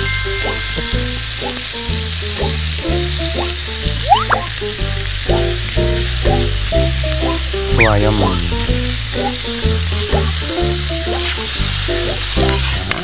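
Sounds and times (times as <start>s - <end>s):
light background music: 0.0s - 13.0s
squid sizzling in frying pan: 0.0s - 13.0s.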